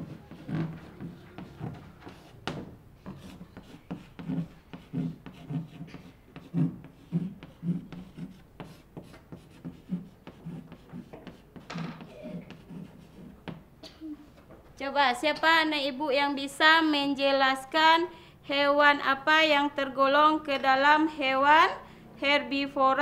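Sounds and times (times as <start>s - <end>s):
chalk tapping and scraping on blackboard: 0.0s - 13.7s.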